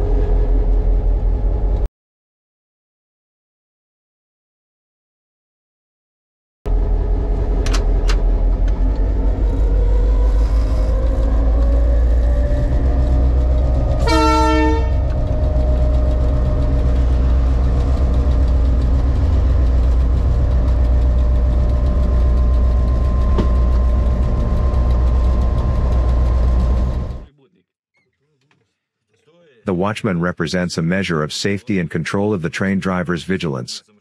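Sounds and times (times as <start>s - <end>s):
diesel locomotive engine running: 0.0s - 1.9s, 6.7s - 27.3s
locomotive horn blast: 12.8s - 17.1s.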